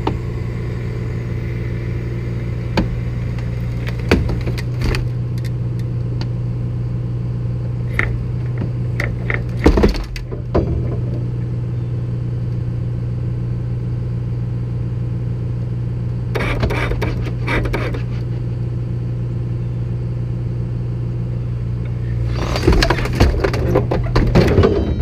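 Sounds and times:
truck engine running: 0.0s - 25.0s
clattering and knocking: 8.0s - 11.3s, 22.3s - 25.0s.

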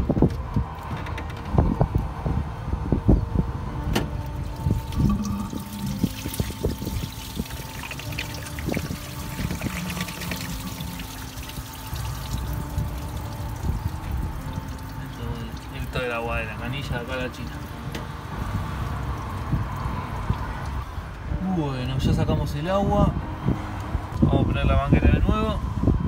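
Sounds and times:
coolant pouring and trickling: 4.2s - 21.2s.

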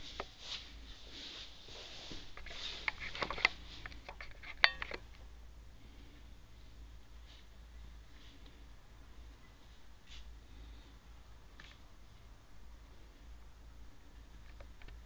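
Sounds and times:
light clicks and taps: 14.4s - 15.0s.

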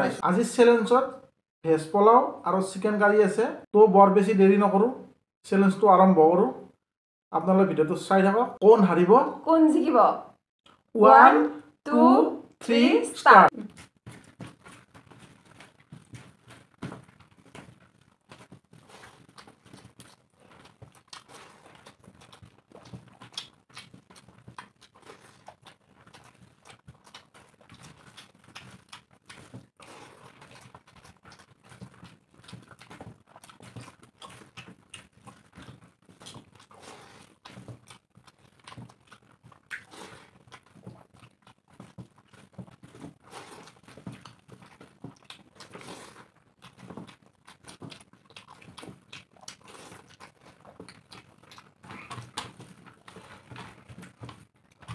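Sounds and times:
wet chewing and lip-smacking: 10.6s - 10.9s, 13.5s - 54.9s.

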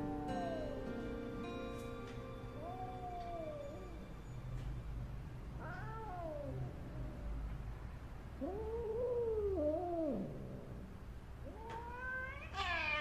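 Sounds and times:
cat yowling: 0.0s - 0.8s, 2.6s - 4.0s, 5.6s - 7.2s, 8.4s - 10.4s, 11.4s - 13.0s.

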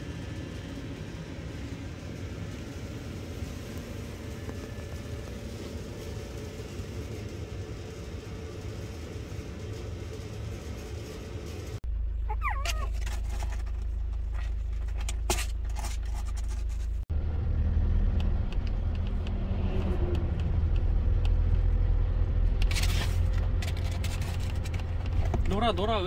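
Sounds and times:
high squeak: 12.3s - 13.0s.

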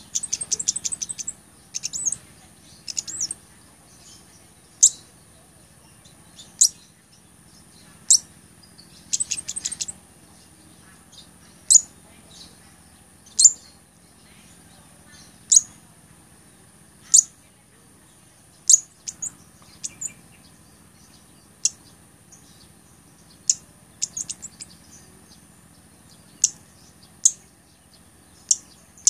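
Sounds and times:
bird rapid ticking notes: 0.0s - 4.2s, 7.6s - 10.0s, 18.5s - 20.5s, 21.2s - 25.5s, 26.1s - 29.0s
bird chip notes: 0.0s - 5.1s.

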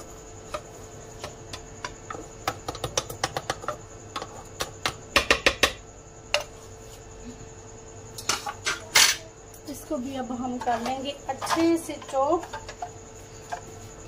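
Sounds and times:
spices tapping into plastic bowl: 0.5s - 5.8s.

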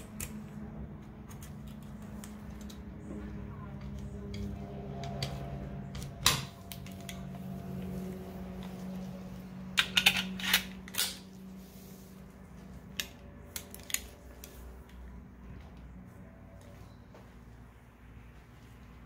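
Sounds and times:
pistol parts clicking: 9.8s - 11.2s.

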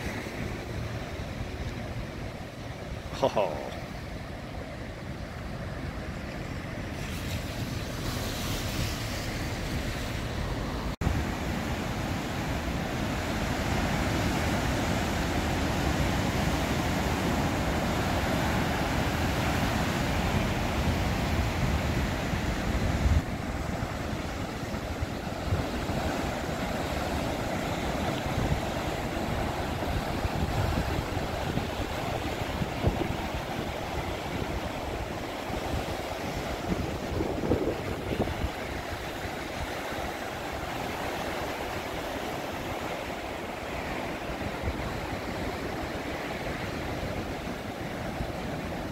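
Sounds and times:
wind buffeting microphone: 4.3s - 42.0s
waves breaking on rocks: 5.5s - 48.9s.

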